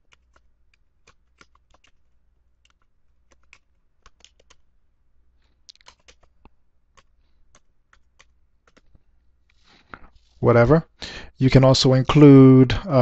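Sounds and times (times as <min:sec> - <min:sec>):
faint keyboard typing: 0:00.0 - 0:04.8, 0:05.4 - 0:10.4.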